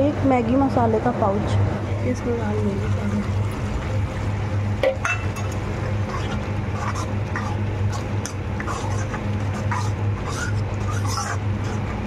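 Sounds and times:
steady low hum: 0:00.0 - 0:12.0
metal spoon scraping pan: 0:05.1 - 0:12.0.

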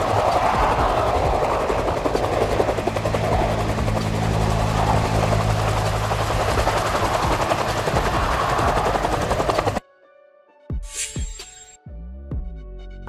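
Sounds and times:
helicopter engine hum: 0:00.0 - 0:09.8
helicopter rotor chopping: 0:00.0 - 0:09.8.

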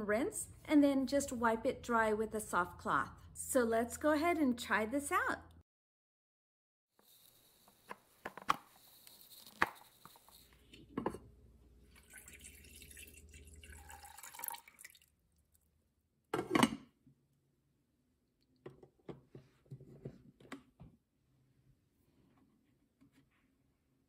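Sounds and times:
water pouring into pot: 0:11.9 - 0:15.6.

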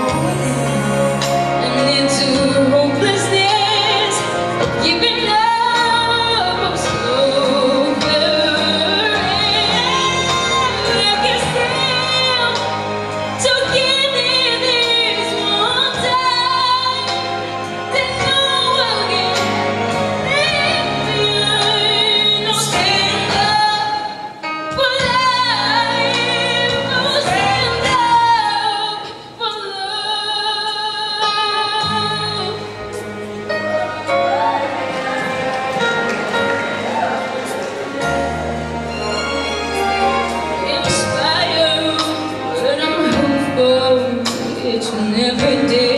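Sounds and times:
backing music: 0:00.0 - 0:45.9
girl singing into a microphone: 0:20.2 - 0:32.6.

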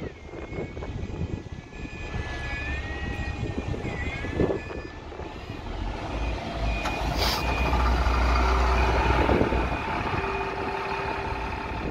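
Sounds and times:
bus engine rumble: 0:00.0 - 0:11.9.

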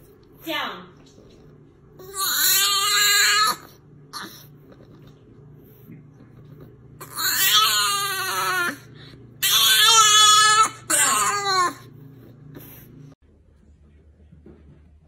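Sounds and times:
puppy whining cries: 0:02.0 - 0:04.5, 0:07.0 - 0:08.8, 0:09.4 - 0:11.9.

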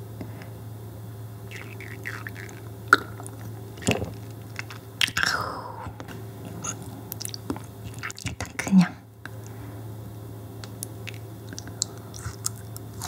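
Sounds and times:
gulping clicks: 0:01.5 - 0:08.7, 0:10.6 - 0:13.0.

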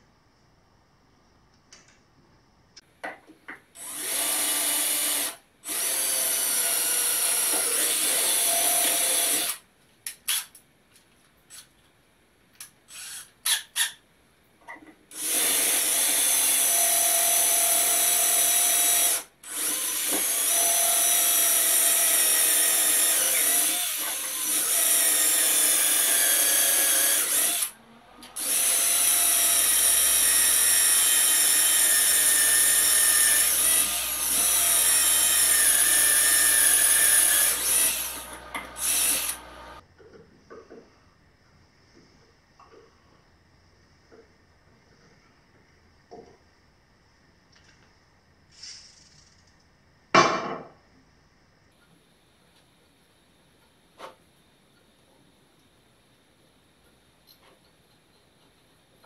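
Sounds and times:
power drill whining: 0:03.8 - 0:09.6, 0:15.2 - 0:39.8.

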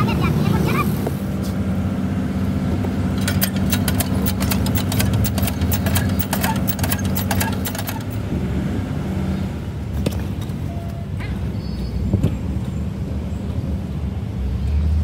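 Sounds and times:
hand pump metallic clanks: 0:03.1 - 0:08.2.

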